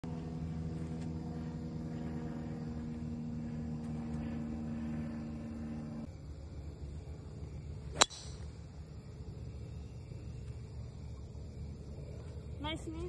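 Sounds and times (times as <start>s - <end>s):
motor humming: 0.0s - 6.1s.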